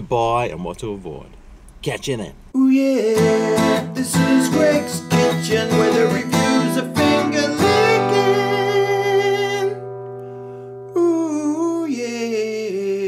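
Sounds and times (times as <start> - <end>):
acoustic guitar chord: 2.6 - 11.5.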